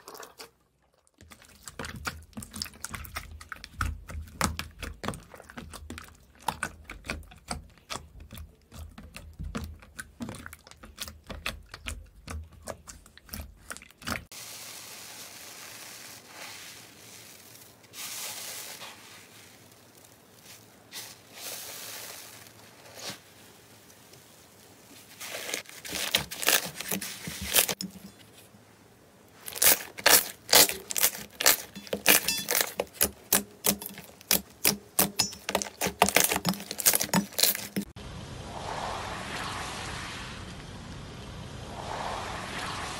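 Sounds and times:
hands squishing slime: 0:01.2 - 0:14.3, 0:29.4 - 0:37.9.

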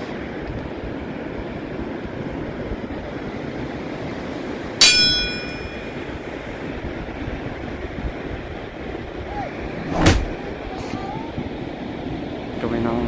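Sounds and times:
surf and wind: 0:00.0 - 0:13.0
bright bell ding: 0:04.8 - 0:06.2.

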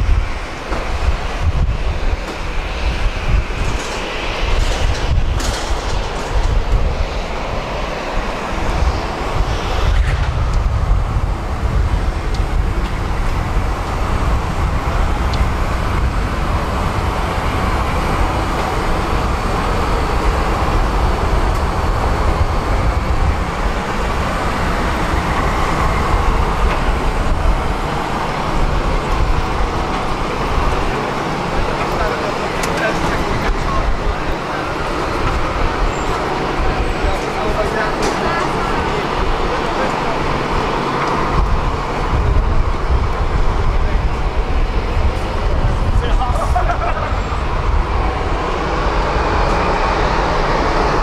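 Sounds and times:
aircraft and ground vehicles roar: 0:00.0 - 0:51.0.

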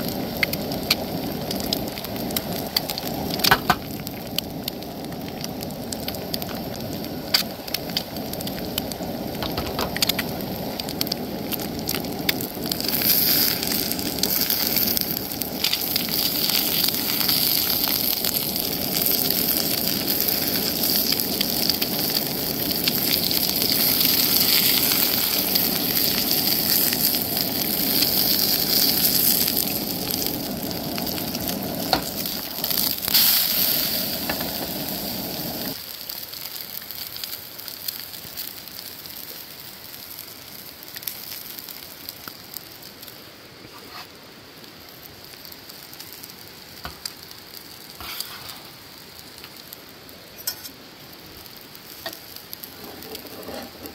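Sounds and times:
gas burner rushing: 0:00.0 - 0:35.8, 0:52.0 - 0:53.9
eggs sizzling in a frying pan: 0:00.0 - 0:53.9
spatula clicks and scrapes: 0:48.0 - 0:48.6.

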